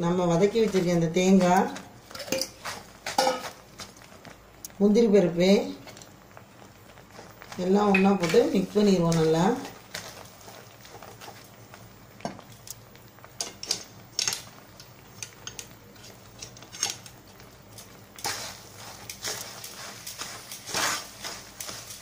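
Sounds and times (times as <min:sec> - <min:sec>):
wooden spatula scraping metal pan: 0:18.2 - 0:22.0.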